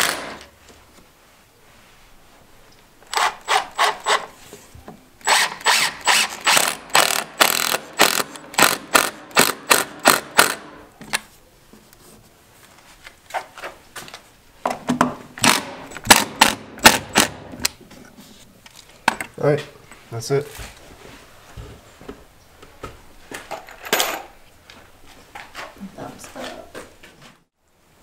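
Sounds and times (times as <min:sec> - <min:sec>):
impact driver hammering screws: 0:00.0 - 0:00.5, 0:03.1 - 0:04.3, 0:05.2 - 0:10.8, 0:15.4 - 0:17.4.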